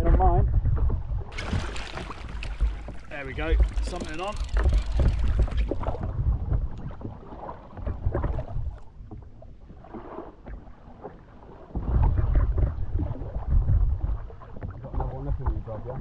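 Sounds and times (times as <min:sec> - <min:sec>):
wind gusting on microphone: 0:00.0 - 0:08.8
water lapping against hull: 0:00.0 - 0:16.0.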